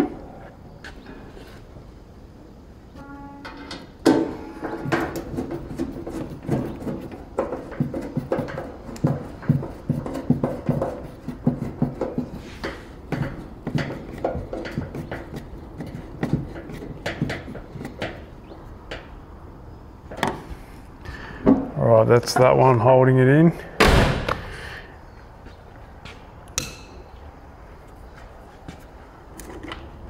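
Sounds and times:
sheet metal ringing: 3.0s - 5.2s.

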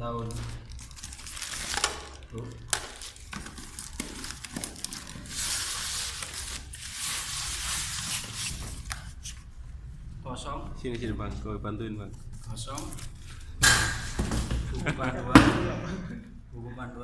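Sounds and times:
cardboard scraping on styrofoam: 3.0s - 9.3s.

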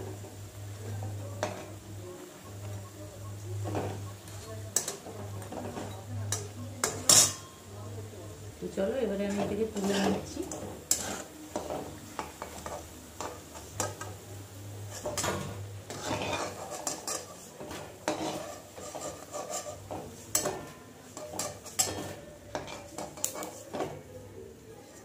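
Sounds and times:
hot oil sizzling: 0.0s - 25.0s
metal spatula scraping metal pan: 3.6s - 7.5s, 9.2s - 14.1s, 14.8s - 24.1s.

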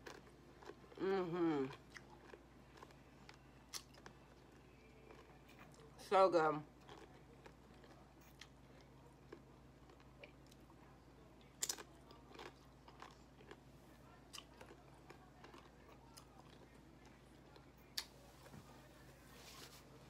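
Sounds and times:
tortilla chip crunching: 1.7s - 5.9s, 6.8s - 10.7s, 11.4s - 13.6s, 14.3s - 18.1s.

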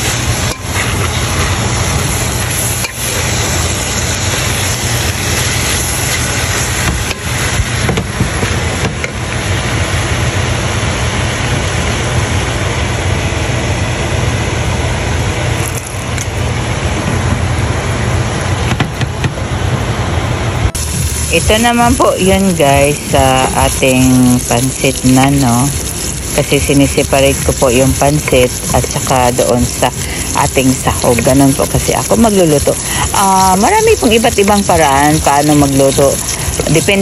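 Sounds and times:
food frying in a pan: 0.0s - 12.0s, 15.5s - 16.0s, 20.8s - 37.0s
low hum: 0.0s - 37.0s.

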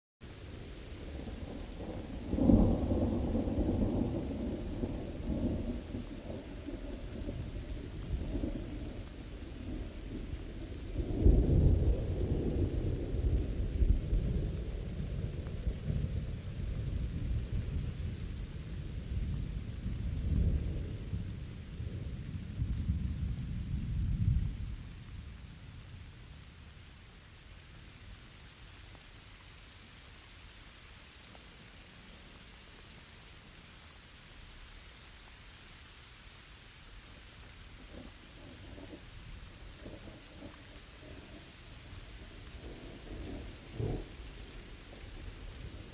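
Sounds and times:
steady rain: 0.2s - 45.9s
thunder rumbling: 0.4s - 26.5s, 37.8s - 45.9s.

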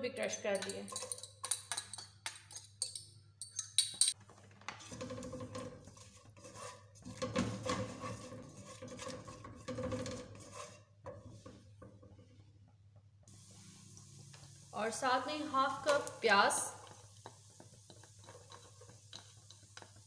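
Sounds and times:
spoon scraping in pot: 4.8s - 12.3s, 16.8s - 20.0s.

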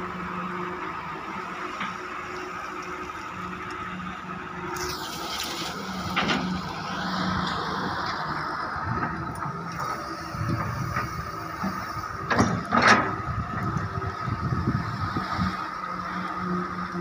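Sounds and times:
diesel engine running: 0.0s - 17.0s
gravel pouring into metal truck bed: 4.8s - 6.6s.

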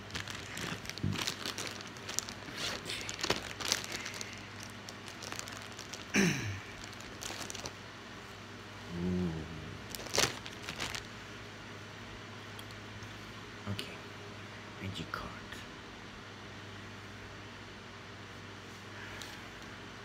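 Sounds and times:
cards clicking and rustling: 0.0s - 6.1s.

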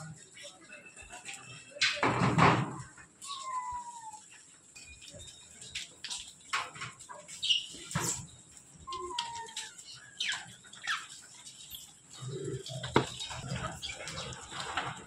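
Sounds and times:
monkeys squeaking and chirping: 3.2s - 4.2s, 7.1s - 14.8s.

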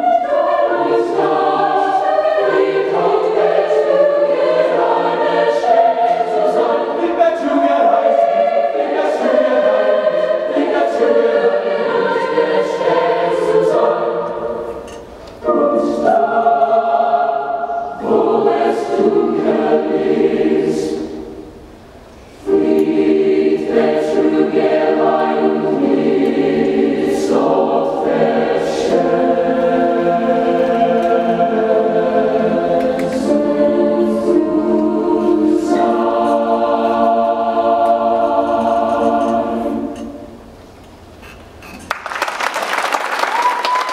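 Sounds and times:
mixed choir singing chords: 0.0s - 40.7s
applause: 41.9s - 43.9s.

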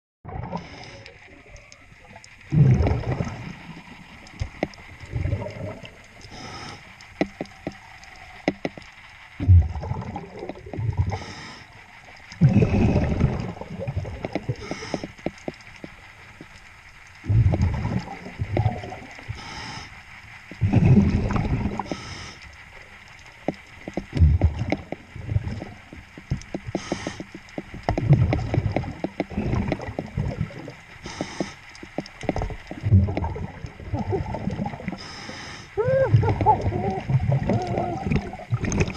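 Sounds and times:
exhaled bubbles rushing: 0.2s - 6.4s, 9.4s - 11.3s, 12.4s - 15.0s, 17.2s - 19.4s, 20.5s - 22.0s, 24.1s - 26.0s, 27.9s - 31.1s, 32.2s - 35.0s, 35.8s - 38.9s
hissing regulator inhalations: 6.2s - 7.8s, 11.0s - 13.6s, 14.4s - 15.6s, 19.3s - 20.0s, 21.7s - 22.6s, 26.5s - 27.6s, 29.3s - 32.1s, 34.9s - 37.1s.

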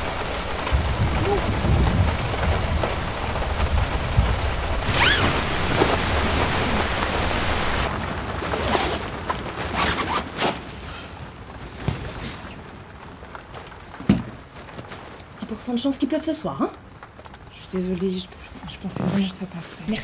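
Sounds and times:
thunder rumbling: 0.0s - 9.2s
heavy rain on a tent: 0.0s - 20.0s.

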